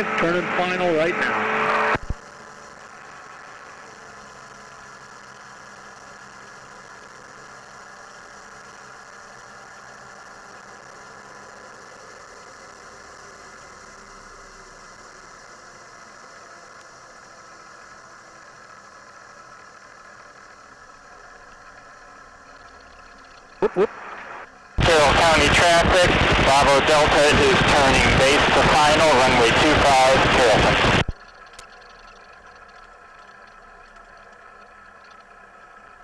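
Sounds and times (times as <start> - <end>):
light aircraft engine droning: 0.0 - 36.0
airflow noise: 23.6 - 31.1.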